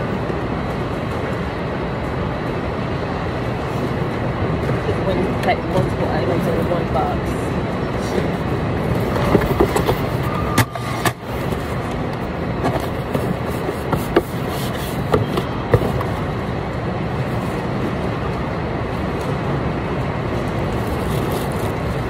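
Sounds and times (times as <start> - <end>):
steady mechanical background noise: 0.0 - 22.0.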